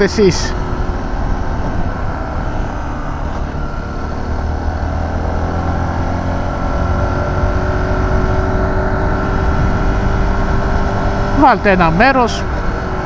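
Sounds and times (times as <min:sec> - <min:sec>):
wind rumble on microphone: 0:06.6 - 0:11.3.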